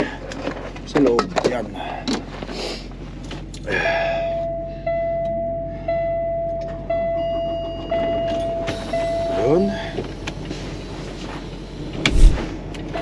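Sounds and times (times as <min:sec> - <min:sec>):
dashboard warning chime: 0:04.2 - 0:09.9
low hum: 0:11.8 - 0:12.7.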